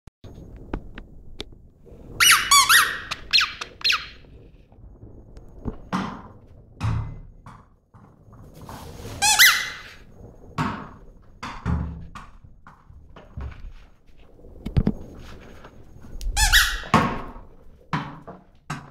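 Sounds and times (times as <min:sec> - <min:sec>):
squeaky dog toy squeaking: 0:02.2 - 0:04.2, 0:09.2 - 0:10.0, 0:16.4 - 0:17.0.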